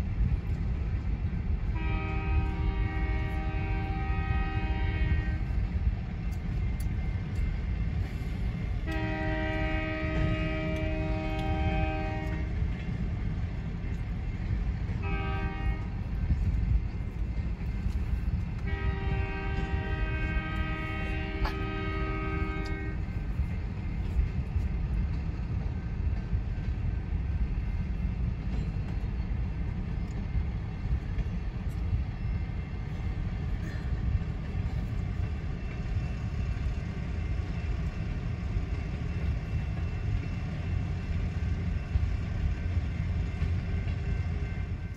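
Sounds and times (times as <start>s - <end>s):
freight train rumbling past: 0.0s - 44.9s
locomotive air horn: 1.8s - 5.6s, 8.8s - 12.5s, 15.0s - 16.0s, 18.6s - 23.0s.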